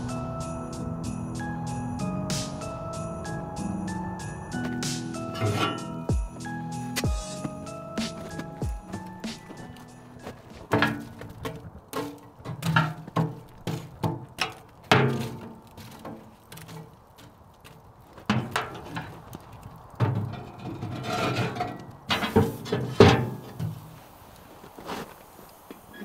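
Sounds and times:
objects knocking and thudding: 0:10.3 - 0:16.9, 0:20.0 - 0:23.8.

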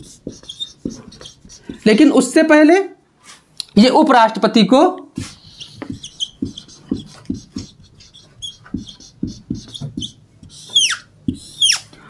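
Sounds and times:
marker writing on whiteboard: 0:00.0 - 0:02.4, 0:05.1 - 0:11.9.

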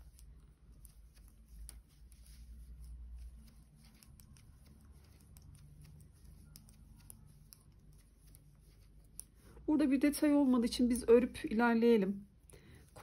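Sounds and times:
knitting needles clicking: 0:00.0 - 0:09.6
low steady hum: 0:00.0 - 0:13.0.

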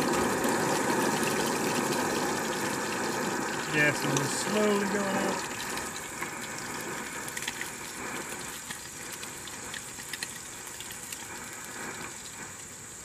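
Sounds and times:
camp stove roaring: 0:00.0 - 0:13.0
oil sizzling in frying pan: 0:00.0 - 0:13.0.

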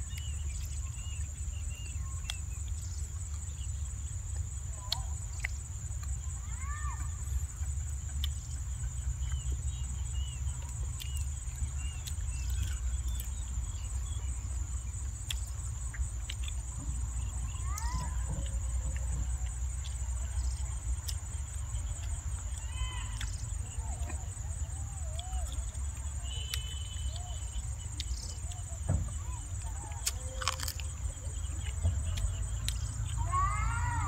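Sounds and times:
person eating with hands: 0:29.8 - 0:32.8.

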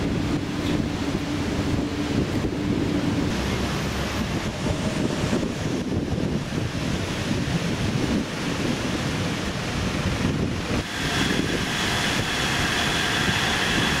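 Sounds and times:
low road rumble: 0:00.0 - 0:14.0
wind buffeting microphone: 0:00.0 - 0:14.0
steady high whine: 0:10.4 - 0:14.0.

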